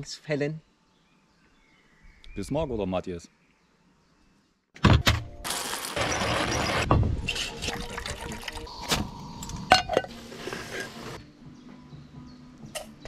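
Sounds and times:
water pouring into a mug: 7.5 - 8.7.

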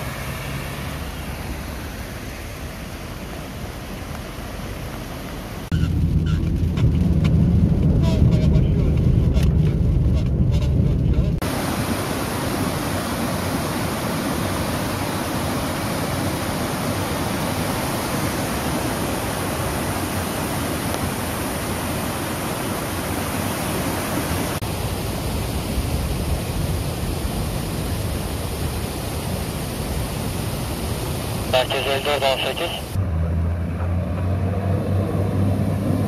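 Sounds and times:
water rushing in flooded street: 0.0 - 5.7, 11.4 - 33.0.

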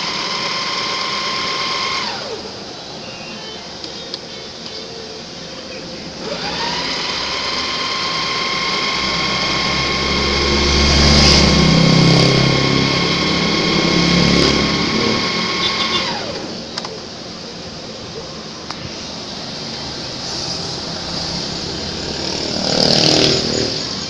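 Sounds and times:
sewing machine running: 0.0 - 2.6, 6.2 - 16.7.

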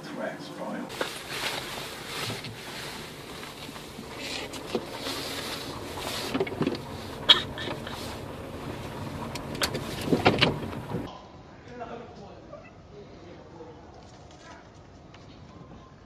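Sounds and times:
car cabin rushing noise: 0.9 - 11.1.

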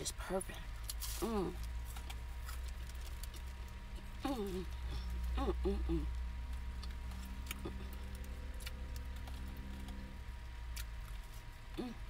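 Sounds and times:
car engine idling: 0.0 - 12.0
car heater running: 0.0 - 12.0.

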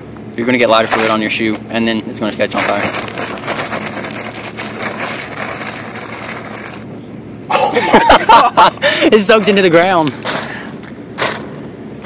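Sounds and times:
steady rushing hiss: 0.0 - 7.5.

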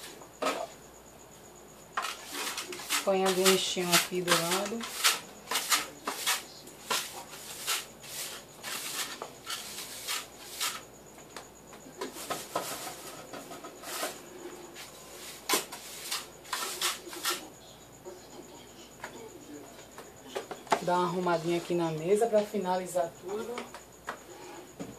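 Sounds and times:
broom sweeping debris: 2.0 - 10.8, 13.8 - 17.4.

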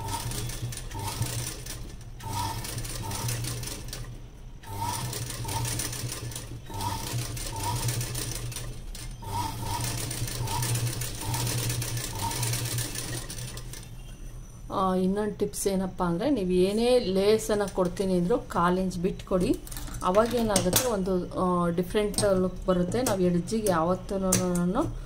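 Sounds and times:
sewing machine running: 0.0 - 13.9.

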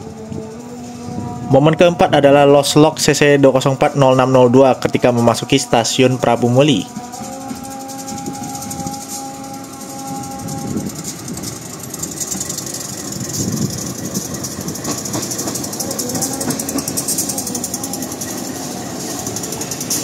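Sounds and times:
locomotive engine running: 0.0 - 20.0
wheels clicking over rail joints: 4.1 - 20.0.

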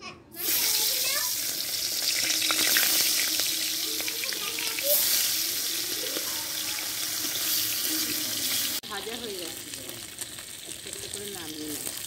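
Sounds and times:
fish sizzling in oil: 0.4 - 12.0.

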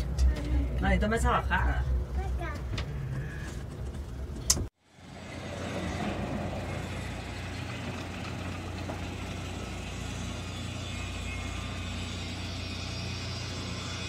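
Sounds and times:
heavy machinery drone: 4.9 - 14.0.

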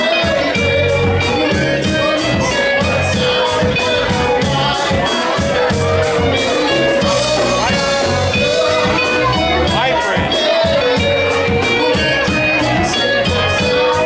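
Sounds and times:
drums: 0.0 - 14.0
electric guitars: 0.0 - 14.0.

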